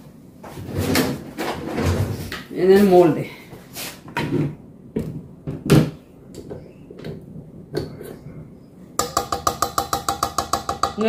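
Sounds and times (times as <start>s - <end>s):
whisk tapping metal bowl: 9.0s - 11.0s.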